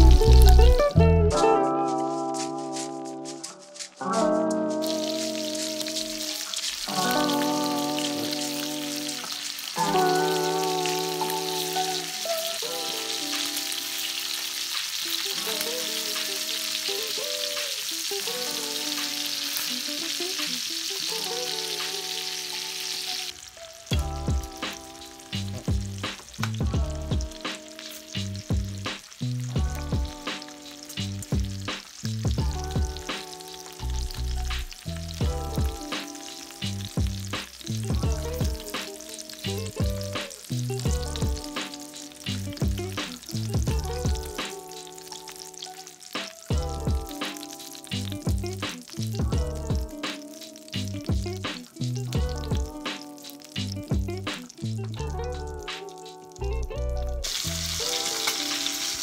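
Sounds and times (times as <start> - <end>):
fish sizzling in a pan: 0.0 - 0.8, 2.2 - 59.0
music with heavy beat: 23.9 - 45.4, 46.0 - 56.3.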